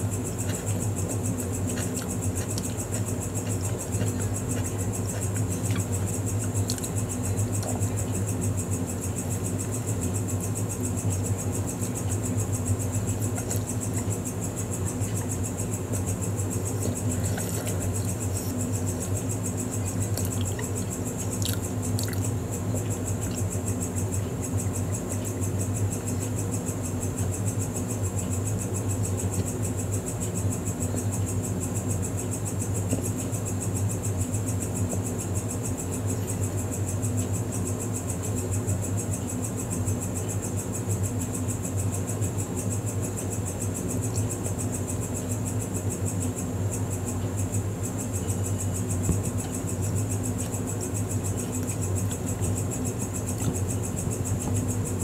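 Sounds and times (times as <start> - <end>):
low hum with hiss: 0.0 - 55.0
chewing and biting burger: 0.2 - 8.3, 16.0 - 23.5
wet mouth clicks: 21.4 - 22.2.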